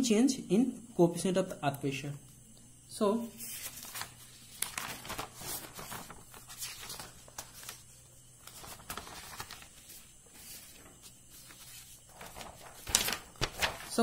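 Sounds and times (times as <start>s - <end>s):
paper rustling and crinkling: 3.4s - 14.0s.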